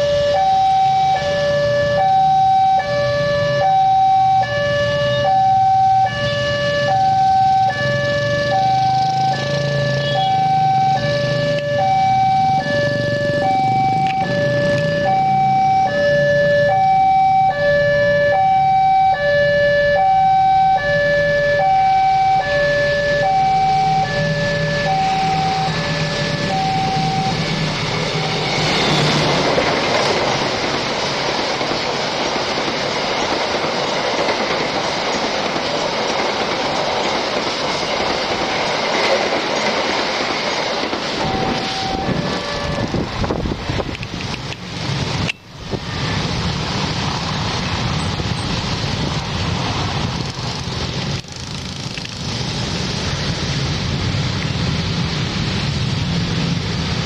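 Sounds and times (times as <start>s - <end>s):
train wheels rushing on rails: 4.2s - 57.0s.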